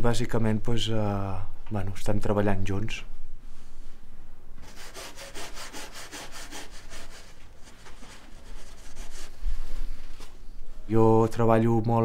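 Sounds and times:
paintbrush scrubbing canvas: 4.6 - 10.2.

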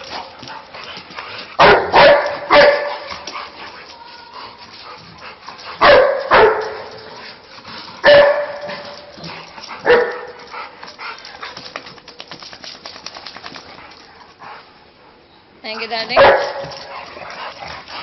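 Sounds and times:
dog barking: 1.6 - 3.1, 5.8 - 6.9, 8.0 - 8.6, 9.8 - 10.4, 16.2 - 16.8
faint rapid clicking: 9.0 - 14.2.

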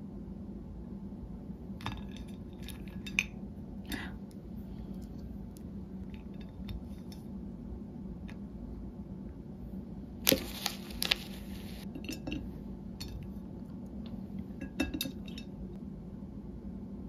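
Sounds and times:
porcelain plates clinking: 14.6 - 15.5.

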